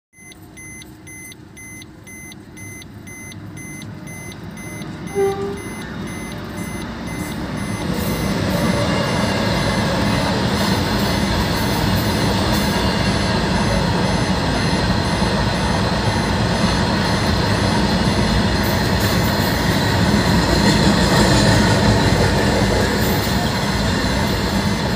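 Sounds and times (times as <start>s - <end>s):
electronic crossing beeping: 0.2s - 24.9s
freight train wagons rumbling: 0.5s - 24.9s
train horn blast: 5.1s - 6.0s.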